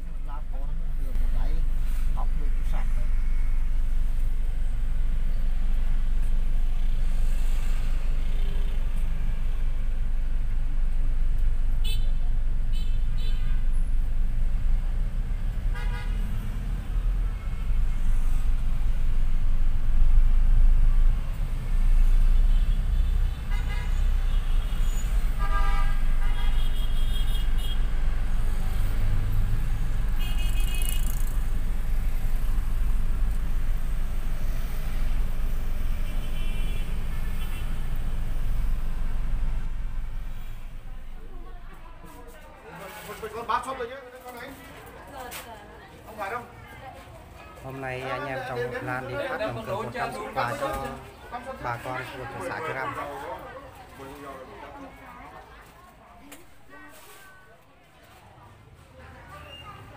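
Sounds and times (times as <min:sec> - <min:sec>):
traffic engine and road rumble: 0:00.0 - 0:59.9
vehicle horn honks: 0:11.8 - 0:13.6, 0:15.7 - 0:16.2, 0:22.4 - 0:27.9, 0:30.2 - 0:31.3, 0:36.0 - 0:37.9.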